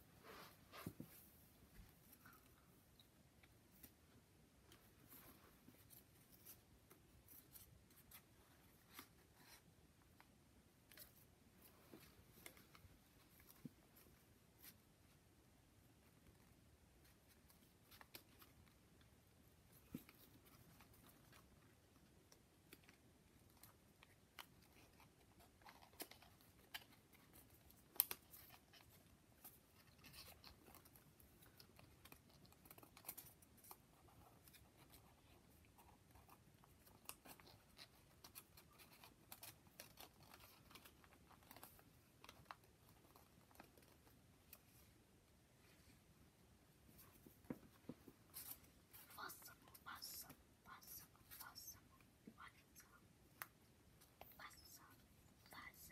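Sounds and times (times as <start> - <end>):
small clicks and crackles: 16.2 - 45.0.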